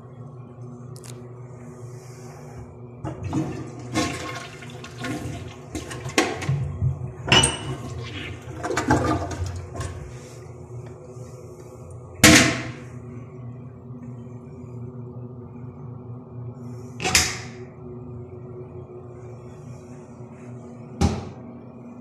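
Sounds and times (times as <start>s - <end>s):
toilet flushing: 3.0s - 10.6s.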